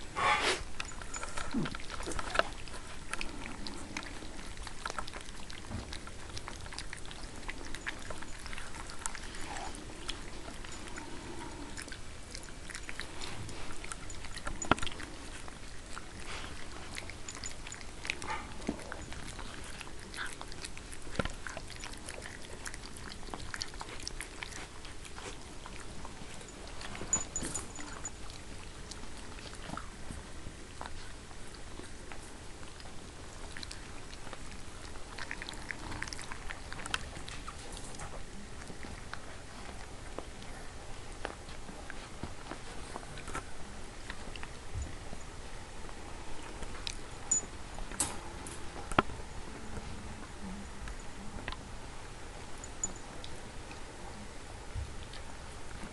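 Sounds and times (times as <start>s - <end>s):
puppies eating from metal bowl: 0.0s - 45.4s, 46.3s - 51.2s.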